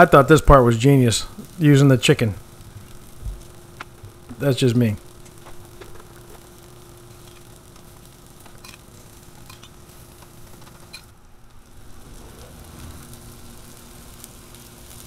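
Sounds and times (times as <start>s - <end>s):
food sizzling on a griddle: 0.0s - 15.0s
steady low hum: 0.0s - 15.0s.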